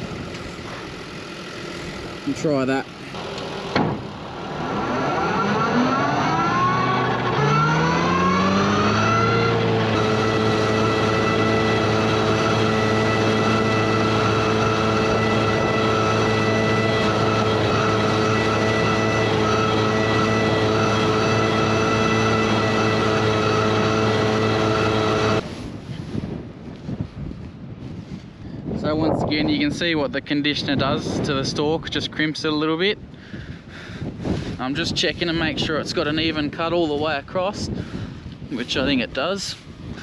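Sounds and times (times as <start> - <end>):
disc mower running: 0.0 - 25.4
tractor engine: 0.0 - 25.6.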